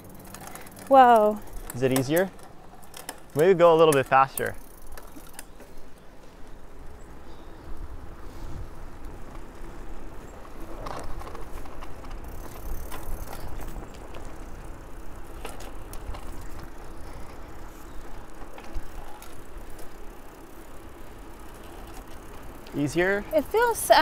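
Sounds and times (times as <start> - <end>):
bicycle gear shifting clicks: 0.0 - 5.8, 9.0 - 22.9
bicycles rolling on pavement: 0.0 - 24.0
wind rumbling on microphone: 6.5 - 19.7.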